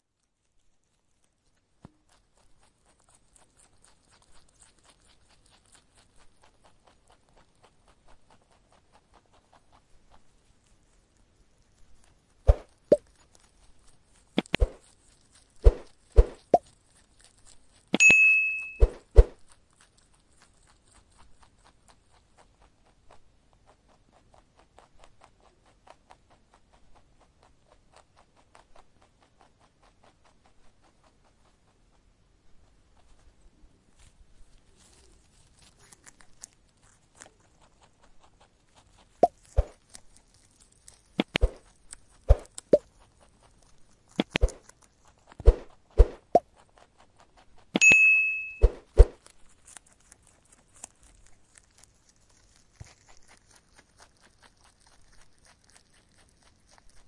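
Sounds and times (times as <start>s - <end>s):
rabbit chewing grass: 0.0s - 57.0s
sharp mouse clicks: 14.4s - 14.8s, 41.2s - 41.6s, 42.3s - 42.9s, 44.2s - 44.6s
bell ding: 18.0s - 18.9s, 47.8s - 48.8s.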